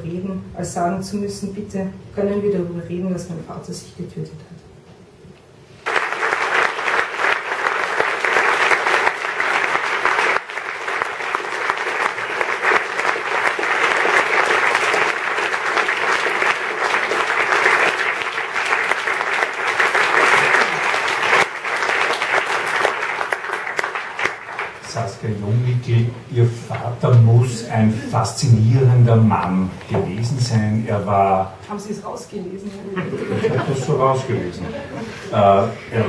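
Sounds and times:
audience applauding: 0:05.8 - 0:25.7.

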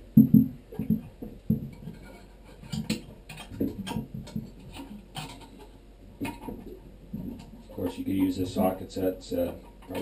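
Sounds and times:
dull knocks against toilet base: 0:00.2 - 0:01.9.

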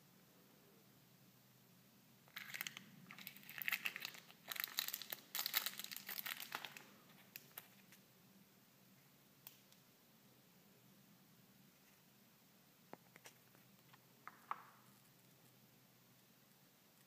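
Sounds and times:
plastic bag crinkling: 0:02.3 - 0:07.8.

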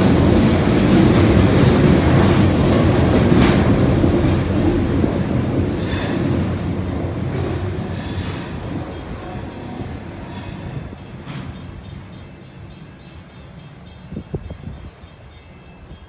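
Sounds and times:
freight train rumbling past: 0:00.0 - 0:16.0
train wheel squeal: 0:05.8 - 0:06.6, 0:07.7 - 0:16.0.

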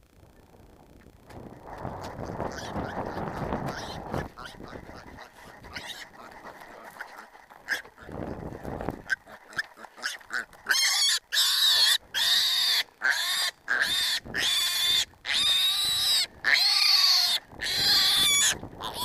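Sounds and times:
footsteps in dry grass: 0:01.2 - 0:10.8
piglet squealing: 0:02.2 - 0:06.9, 0:09.1 - 0:19.0.

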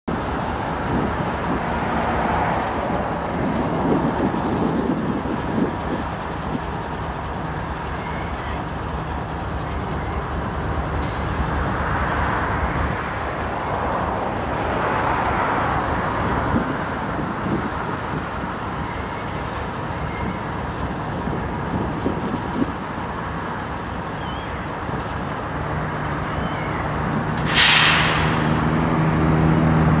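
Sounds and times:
diesel locomotive engine rumble: 0:00.0 - 0:30.0
wheel and rail noise: 0:00.1 - 0:30.0
air hiss: 0:27.4 - 0:29.2.

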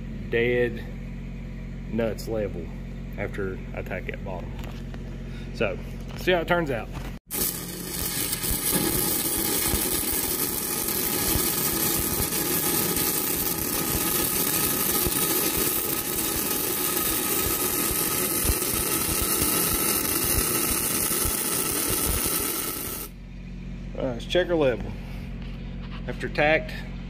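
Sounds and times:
welding arc crackling hiss: 0:07.2 - 0:23.2.

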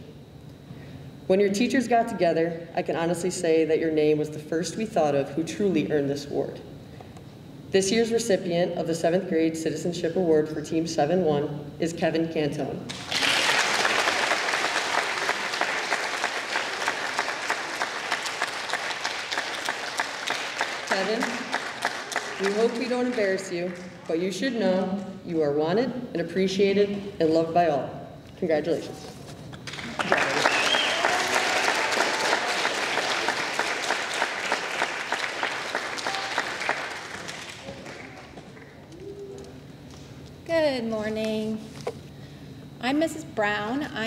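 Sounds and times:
audience applauding: 0:12.9 - 0:24.1, 0:29.6 - 0:38.8.

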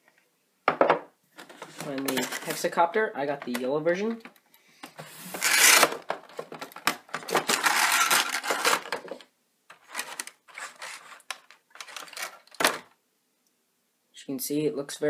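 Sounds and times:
packaging rustling and scraping: 0:01.4 - 0:02.8, 0:04.9 - 0:12.9.

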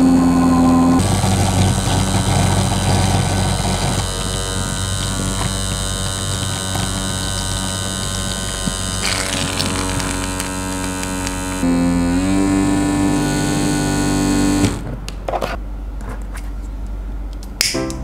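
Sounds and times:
vacuum pump humming: 0:00.0 - 0:14.9
hissing: 0:01.0 - 0:12.4.

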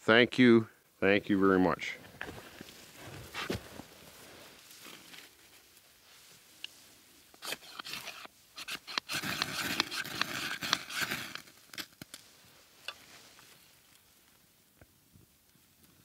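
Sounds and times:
knife scraping ferrocerium rod: 0:07.4 - 0:11.5.

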